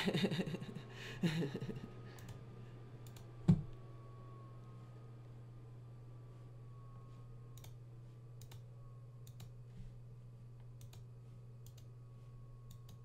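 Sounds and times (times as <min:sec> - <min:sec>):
steady low hum: 0:00.0 - 0:13.0
computer mouse clicking: 0:03.0 - 0:03.6, 0:08.4 - 0:08.6, 0:09.3 - 0:09.5, 0:10.8 - 0:11.9, 0:12.6 - 0:13.0.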